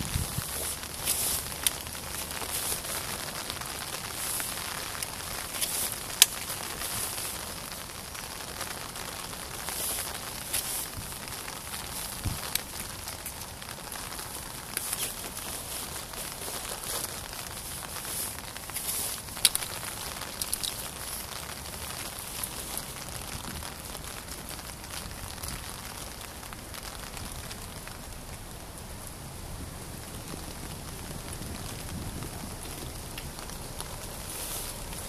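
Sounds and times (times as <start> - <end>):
rain pattering: 0.0 - 35.0.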